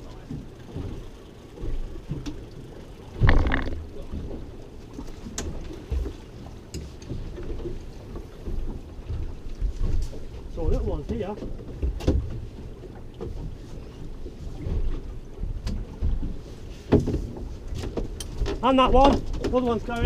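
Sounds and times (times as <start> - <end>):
water moving around boat: 0.0 - 20.0
wind rumbling on microphone: 3.2 - 4.5.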